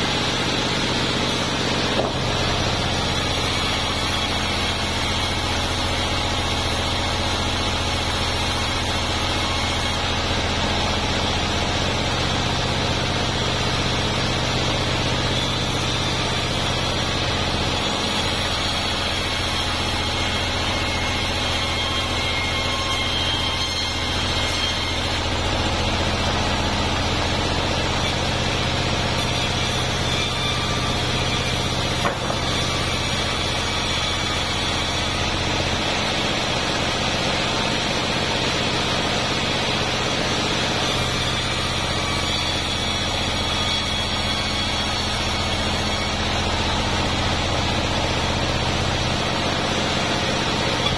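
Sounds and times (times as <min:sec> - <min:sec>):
band saw machine drone: 0:00.0 - 0:50.9
brief knock: 0:02.0 - 0:02.2
high saw blade tone: 0:14.7 - 0:50.9.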